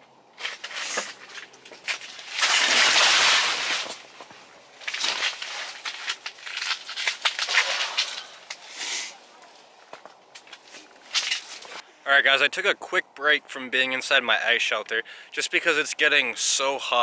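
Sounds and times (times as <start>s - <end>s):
fabric rustling and crinkling: 0.4s - 8.5s.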